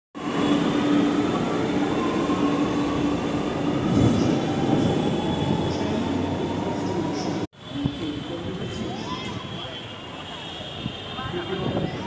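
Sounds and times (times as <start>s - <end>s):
train rumbling: 0.2s - 9.5s.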